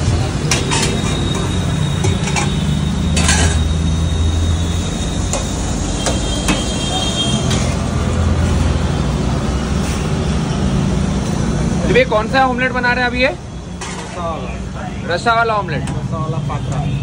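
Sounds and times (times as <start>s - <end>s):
metal spoon clinking on griddle: 0.5s - 3.7s.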